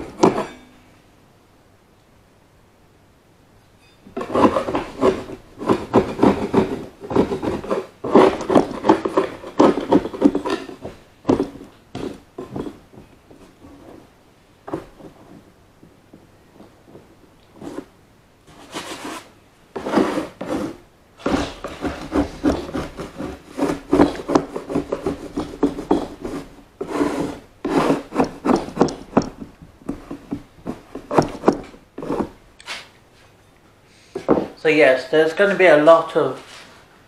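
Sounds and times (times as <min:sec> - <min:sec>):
rubbing on wooden baseboard: 0:04.2 - 0:15.5, 0:16.5 - 0:17.9, 0:18.5 - 0:32.9.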